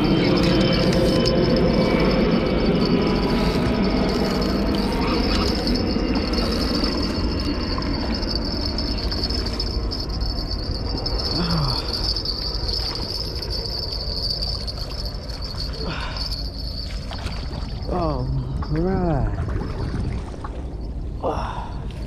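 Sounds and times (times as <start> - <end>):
high-pitched whine: 0.0 - 22.0.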